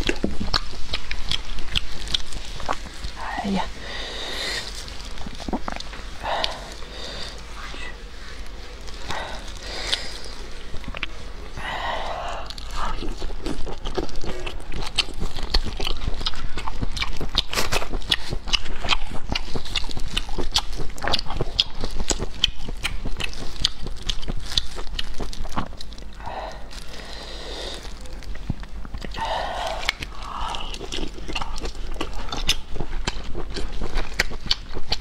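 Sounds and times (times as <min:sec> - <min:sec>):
wet chewing clicks and smacks: 0:12.8 - 0:26.2, 0:29.8 - 0:35.0.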